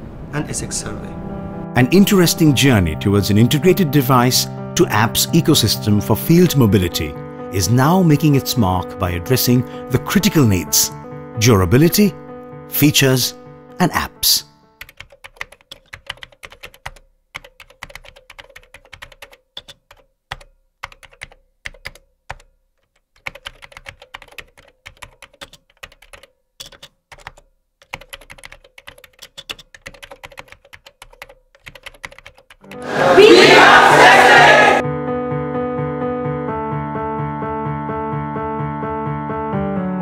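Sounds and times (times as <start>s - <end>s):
keyboard typing: 14.8s - 32.9s.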